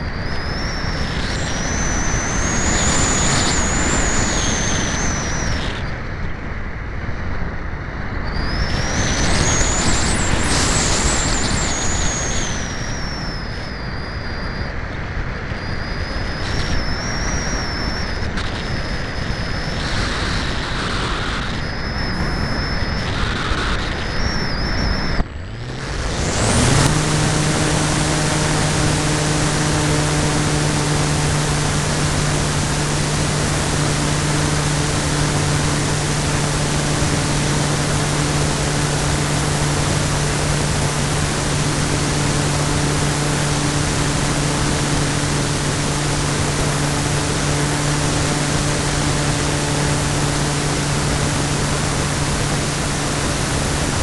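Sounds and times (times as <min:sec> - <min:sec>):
electric motor and propeller whine: 0:00.0 - 0:54.0
air rushing over microphone: 0:16.0 - 0:54.0.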